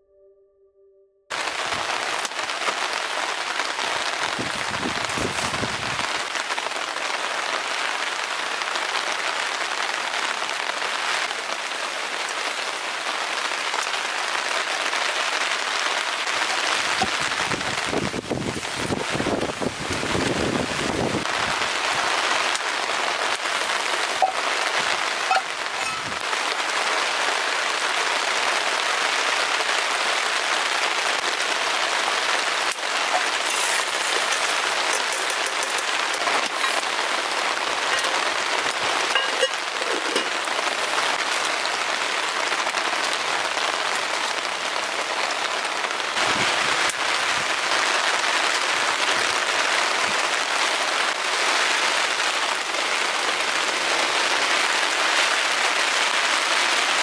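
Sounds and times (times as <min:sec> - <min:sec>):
wood fire crackling: 0:01.3 - 0:45.5
heavy rain: 0:01.3 - 0:57.0.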